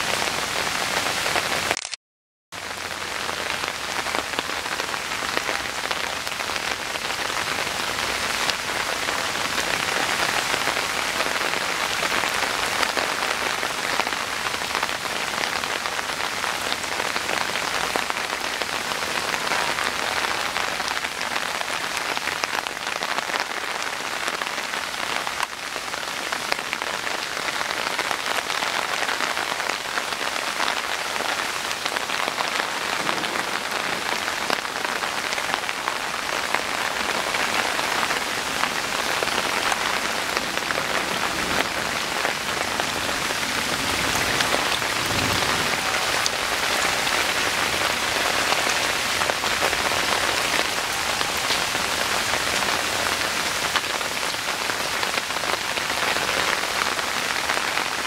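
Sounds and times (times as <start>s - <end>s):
steady rain falling: 0.0s - 2.0s, 2.6s - 58.0s.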